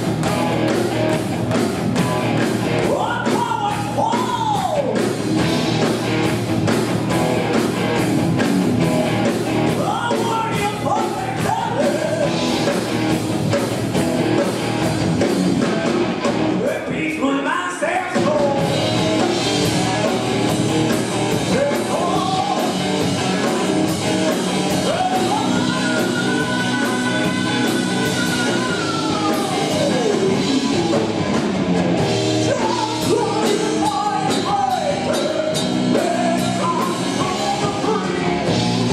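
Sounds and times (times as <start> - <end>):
electric guitar: 0.0 - 16.7, 18.2 - 38.9
bass guitar: 0.0 - 17.2, 18.1 - 38.9
drum kit: 0.0 - 38.9
person singing: 21.4 - 31.0, 32.4 - 38.4.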